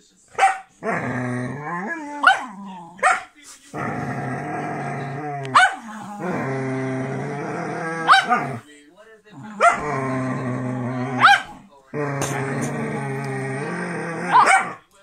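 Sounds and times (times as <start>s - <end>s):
dog barking: 0.3s - 0.8s, 2.2s - 3.4s, 5.5s - 5.9s, 8.0s - 8.6s, 9.5s - 9.9s, 11.2s - 11.6s, 14.3s - 14.8s
dog growling: 0.8s - 8.7s, 9.3s - 14.9s.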